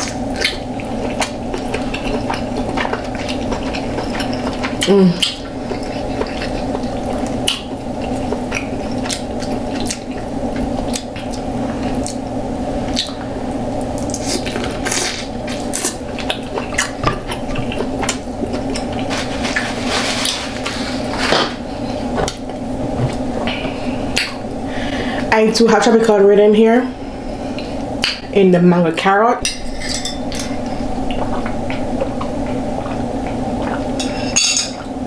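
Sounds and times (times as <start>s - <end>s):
wet chewing and smacking: 0.0s - 19.1s
steady low hum: 0.0s - 35.0s.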